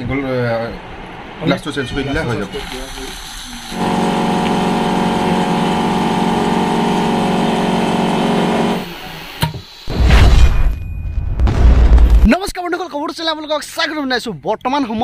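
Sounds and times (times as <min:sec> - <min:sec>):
vacuum pump motor humming: 0:03.0 - 0:09.4
loud low boom: 0:09.9 - 0:12.3.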